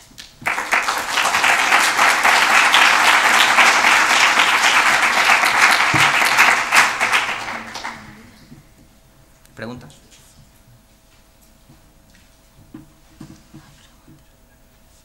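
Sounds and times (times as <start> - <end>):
audience applauding: 0.4 - 8.5.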